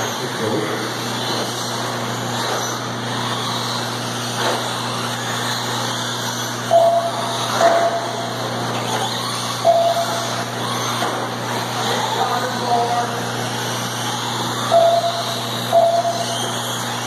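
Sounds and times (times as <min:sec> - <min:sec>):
rc car motors whining: 0:00.0 - 0:17.0
steady low hum: 0:00.0 - 0:17.0
short flat beeps: 0:06.7 - 0:08.4, 0:09.6 - 0:10.4, 0:14.7 - 0:16.5.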